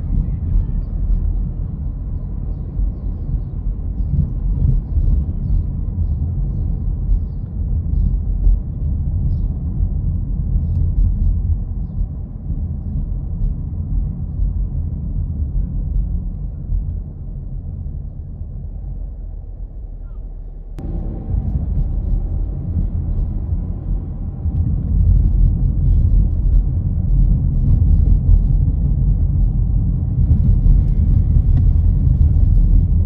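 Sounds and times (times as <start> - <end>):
steady low rumble: 0.0 - 33.0.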